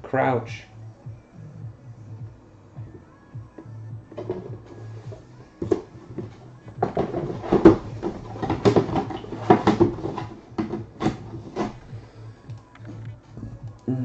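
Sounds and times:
plastic case knocking and tapping: 4.1 - 11.8
cardboard box rustling: 5.6 - 11.9.

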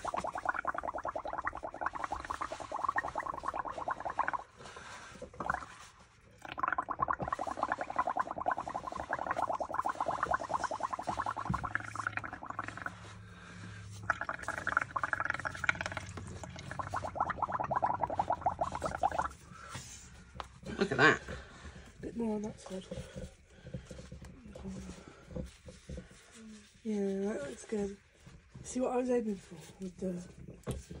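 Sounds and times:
straw blowing bubbles in paint: 0.0 - 22.0.

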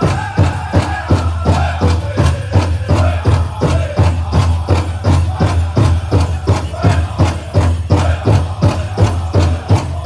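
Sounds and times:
big drum steady beat: 0.0 - 10.0
jingling bells: 0.0 - 10.0
singers chanting: 0.0 - 10.0.

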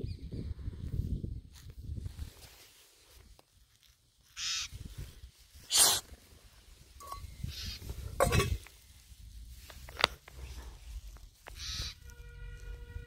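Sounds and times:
harsh raspy bird calls: 4.4 - 4.7, 7.3 - 7.9, 11.5 - 12.1.

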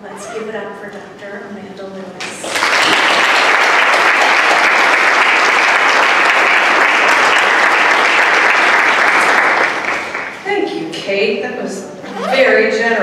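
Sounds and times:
audience applauding: 2.4 - 10.4.

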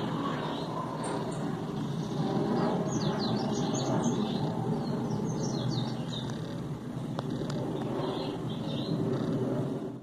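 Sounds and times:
songbird chirping: 0.5 - 6.6.

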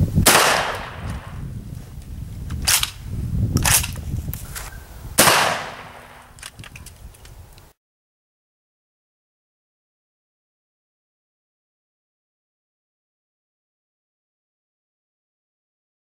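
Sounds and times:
gunshots with echo: 0.3 - 1.4, 5.2 - 6.3.

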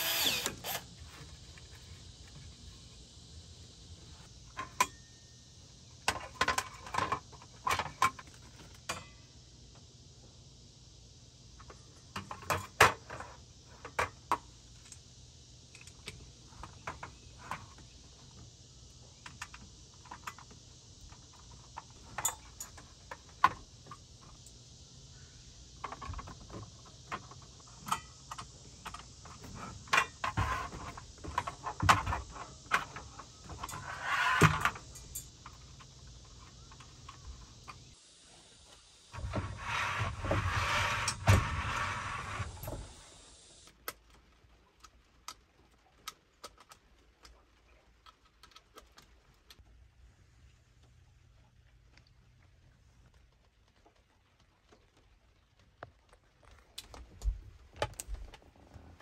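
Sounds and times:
clicks and rattles of handling: 43.8 - 49.7.

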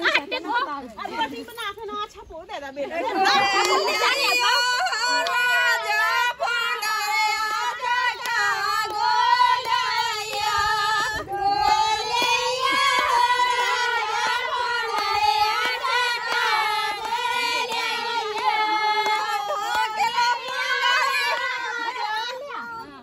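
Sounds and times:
women singing folk song: 2.9 - 23.0
hand claps: 7.4 - 10.6, 12.1 - 21.6.

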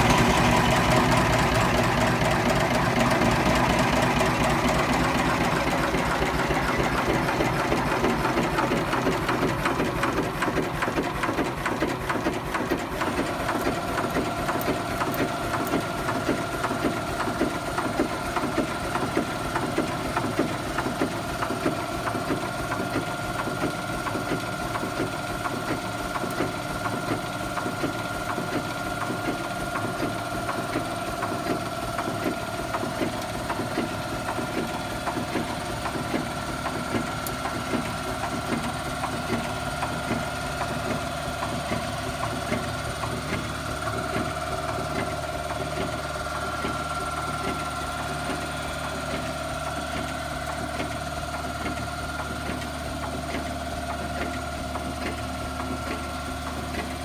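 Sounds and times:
engine mechanical clatter: 0.0 - 57.0.

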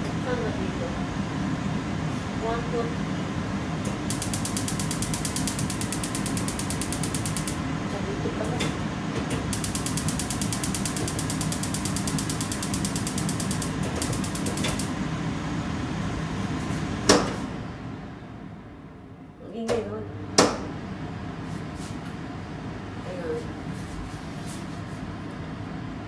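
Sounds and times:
gas igniter clicking: 4.1 - 7.6, 9.4 - 14.9.

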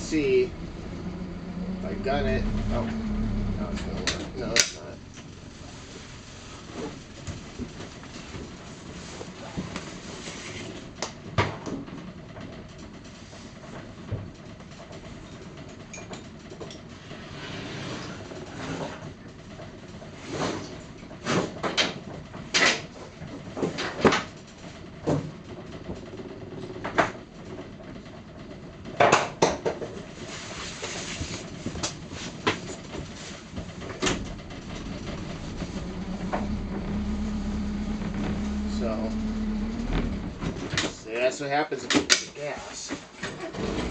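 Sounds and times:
irregular knocks and clunks: 31.7 - 41.1.

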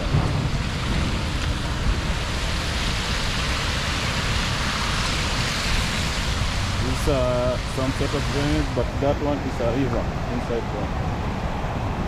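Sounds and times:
rainwater rushing: 0.0 - 12.0
wind rumble on microphone: 0.0 - 12.0.

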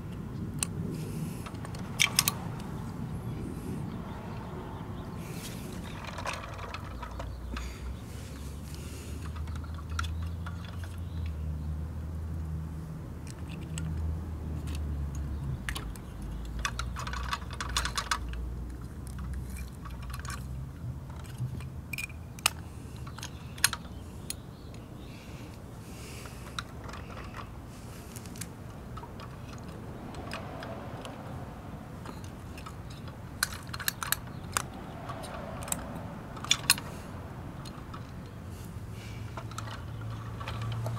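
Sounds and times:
toy metal clicks and knocks: 1.4 - 2.8, 5.8 - 7.6, 9.2 - 11.4, 13.2 - 24.8, 26.4 - 27.5, 28.2 - 31.4, 32.0 - 36.9, 37.6 - 38.4, 39.3 - 40.9.

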